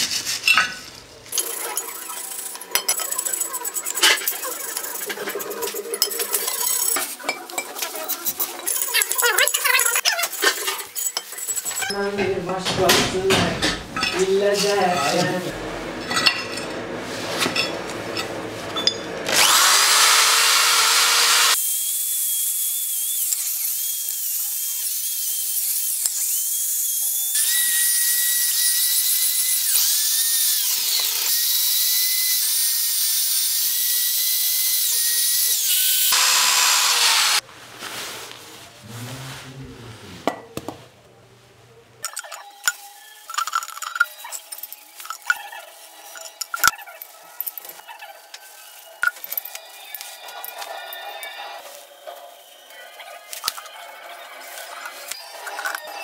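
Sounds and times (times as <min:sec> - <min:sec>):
electric drill with wire brush whining: 0:19.2 - 0:37.4.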